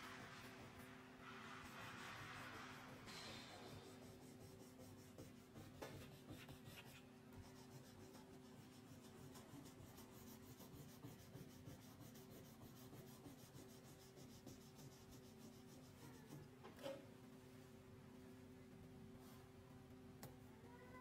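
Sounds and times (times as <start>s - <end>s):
low steady hum: 0.0s - 21.0s
crayon rubbing on paper: 3.6s - 16.4s.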